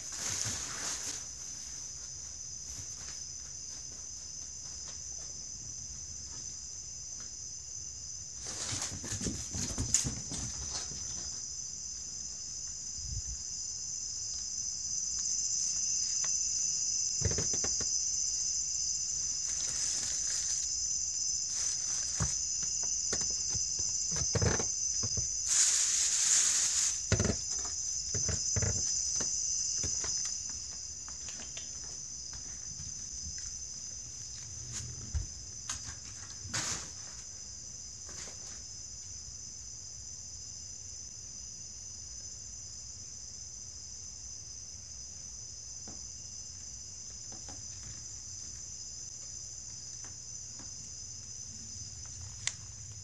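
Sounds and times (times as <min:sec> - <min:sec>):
insects chirring: 0:00.0 - 0:53.0.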